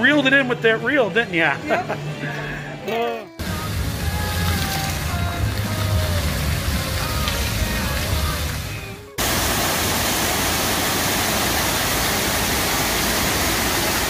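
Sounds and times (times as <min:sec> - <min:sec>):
background music: 0:00.0 - 0:09.3
loud steady rushing hiss: 0:03.4 - 0:14.0.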